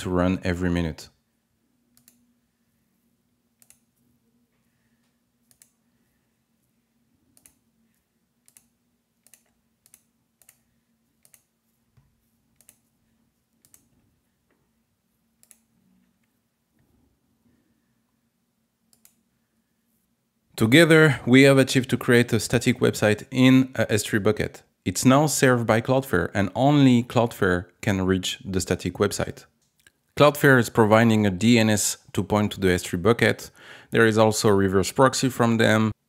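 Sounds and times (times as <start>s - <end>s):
faint steady hum: 0.0s - 36.0s
computer mouse clicks: 1.9s - 2.3s, 3.6s - 4.0s, 5.4s - 5.8s, 7.3s - 11.5s, 12.5s - 12.9s, 13.5s - 14.0s, 15.4s - 16.4s, 18.9s - 19.2s.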